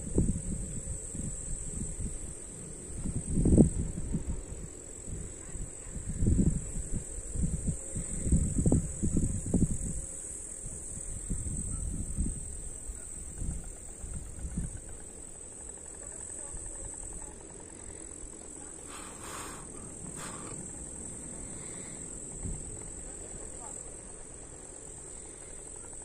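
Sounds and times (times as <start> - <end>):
wind gusting on microphone: 0.0 - 15.1, 18.9 - 23.6
crickets chirring: 0.0 - 26.0
short bursts of hiss: 18.8 - 20.7.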